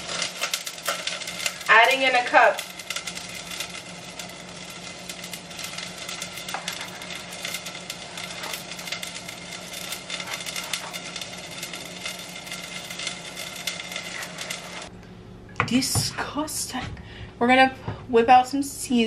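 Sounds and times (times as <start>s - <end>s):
rice grains pouring: 0.0s - 14.9s.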